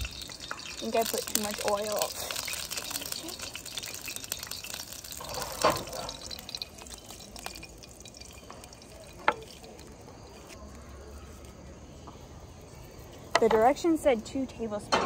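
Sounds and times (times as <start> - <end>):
oil sizzling and popping in pan: 0.0 - 10.8.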